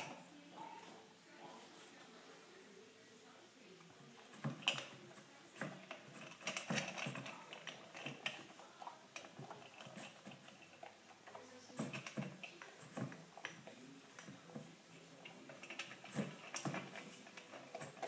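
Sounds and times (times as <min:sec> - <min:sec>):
dog crunching kibble in metal bowl: 0:04.2 - 0:18.0.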